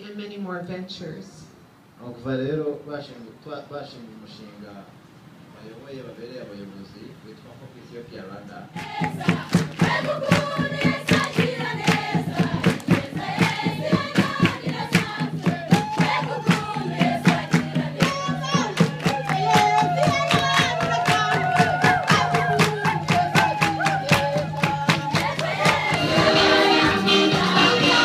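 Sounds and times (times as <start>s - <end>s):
voices singing together: 8.7s - 28.0s
sharp steady beat: 8.8s - 28.0s
dense music: 25.8s - 28.0s.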